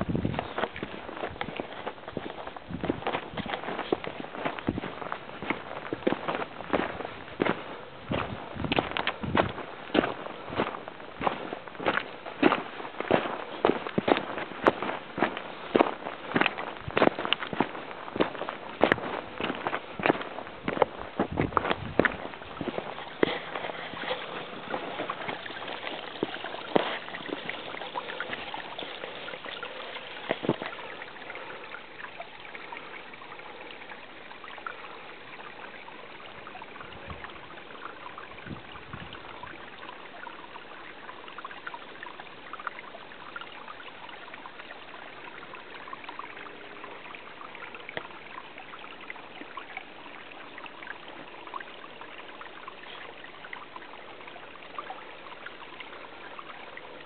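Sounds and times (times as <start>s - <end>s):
stream trickling: 0.0s - 57.0s
footsteps on rock: 0.1s - 28.5s, 30.3s - 30.8s.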